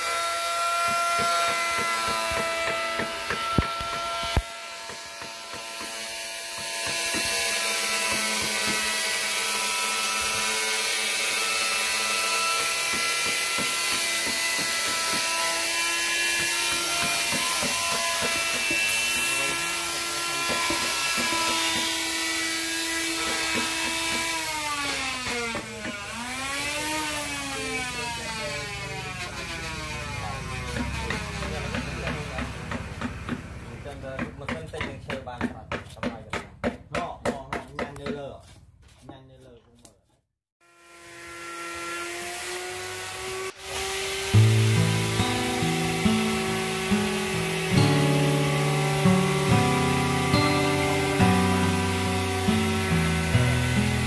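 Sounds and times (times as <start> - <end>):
small motor whining: 5.8 - 32.3.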